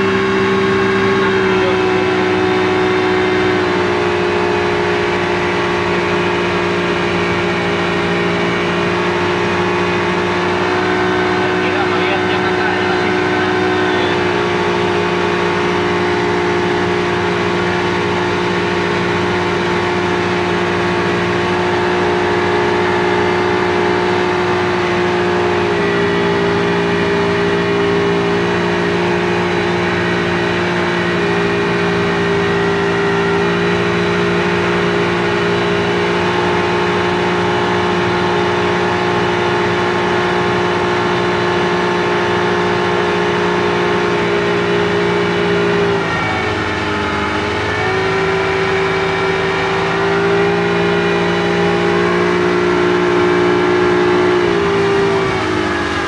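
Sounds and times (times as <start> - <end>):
speedboat engine running: 0.0 - 56.0.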